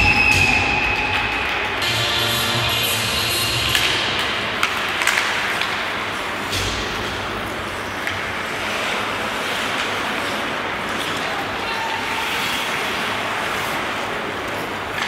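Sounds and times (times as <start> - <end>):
hockey sticks and puck clacking: 0.0 - 15.0.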